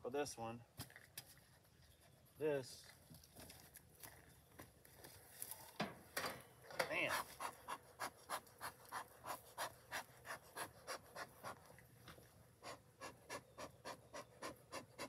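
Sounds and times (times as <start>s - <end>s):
bellows smoker puffing: 12.5s - 15.0s.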